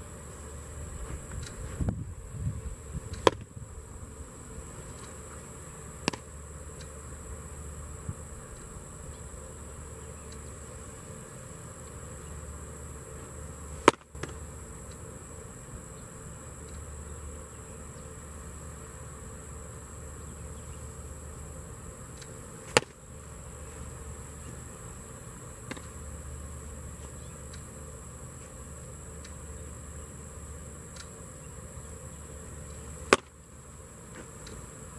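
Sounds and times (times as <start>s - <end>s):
high buzz of insects: 0.0s - 34.9s
baseball popping into a mitt: 3.2s - 3.5s, 6.0s - 6.3s, 13.8s - 14.4s, 22.7s - 23.0s, 25.6s - 25.9s, 33.1s - 33.4s.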